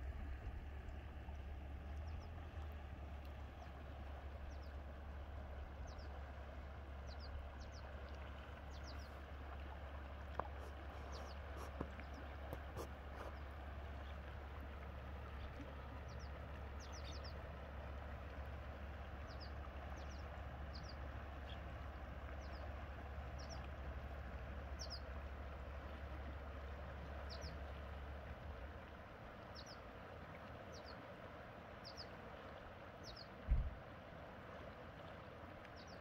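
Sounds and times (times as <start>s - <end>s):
river flowing: 0.0s - 36.0s
small bird chirping: 10.4s - 13.4s.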